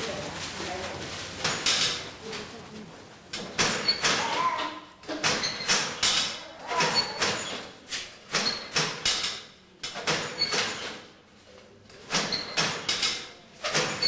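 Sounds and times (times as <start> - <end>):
wooden loom knocking and clattering: 1.4 - 2.5, 3.3 - 11.1, 12.0 - 14.0.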